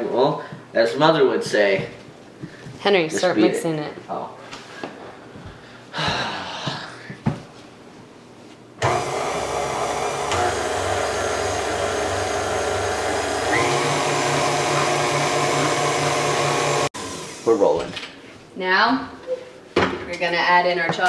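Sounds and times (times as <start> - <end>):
stand mixer motor running: 8.8 - 17.5.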